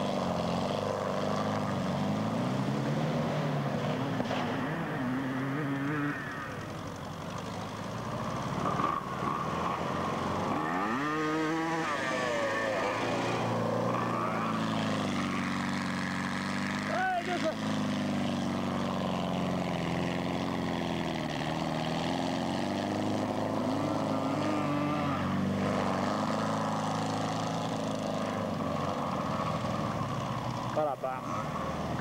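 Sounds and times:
small buggy engine revving: 0.0 - 32.0.

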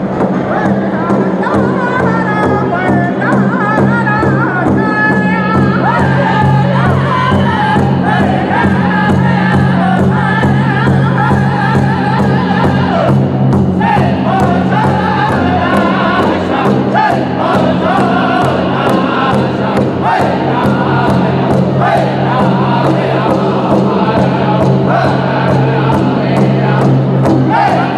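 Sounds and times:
large drum steady beat: 0.0 - 27.9
group singing high-pitched in unison: 5.5 - 13.2, 13.8 - 27.9.

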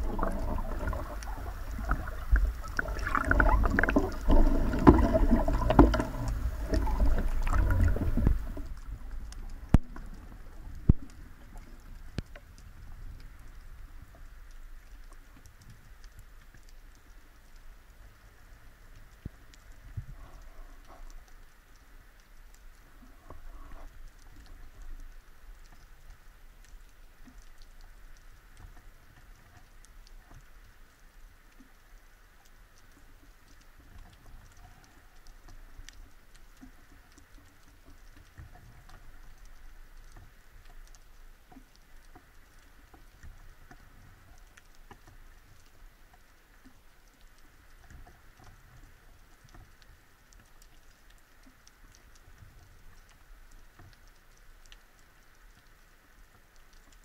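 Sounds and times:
low rumble of water movement: 0.0 - 57.0
underwater crackle of tiny clicks: 0.0 - 57.0.

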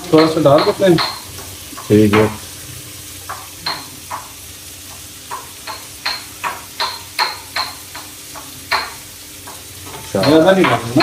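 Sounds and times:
utensil clinking against metal pan: 0.0 - 2.4, 3.3 - 4.3, 5.3 - 11.0
low kitchen background: 0.0 - 11.0.

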